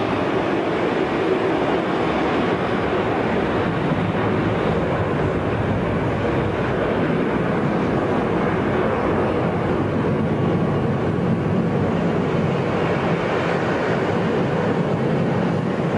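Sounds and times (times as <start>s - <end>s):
jet engines at takeoff: 0.0s - 15.9s.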